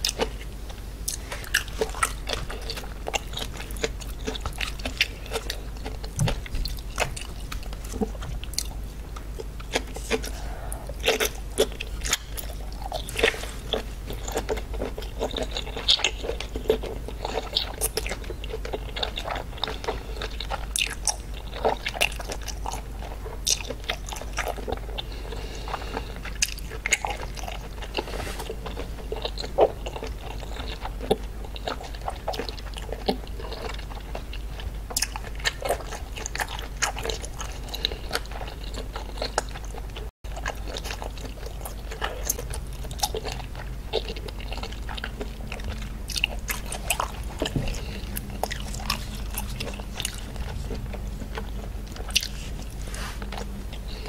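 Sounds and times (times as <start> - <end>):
person chewing wetly: 0.0 - 54.0
low hum: 42.4 - 54.0.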